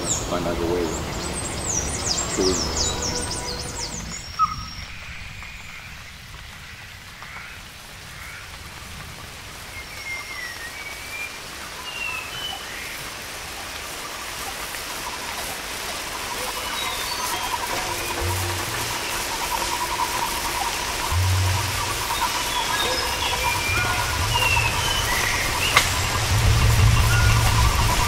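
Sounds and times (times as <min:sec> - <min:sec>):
rain hiss: 0:00.0 - 0:28.0
rapidly pulsing call: 0:15.1 - 0:28.0.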